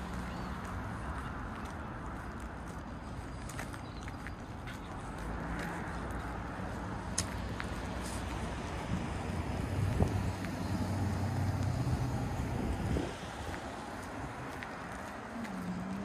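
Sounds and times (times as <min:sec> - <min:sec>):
passing vehicle engine hum: 0:00.0 - 0:16.0
wind noise on microphone: 0:08.3 - 0:14.6.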